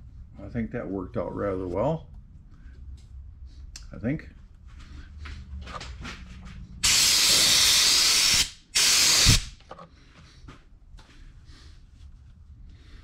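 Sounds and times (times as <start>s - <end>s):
compressed air blow gun hissing: 6.8s - 9.6s.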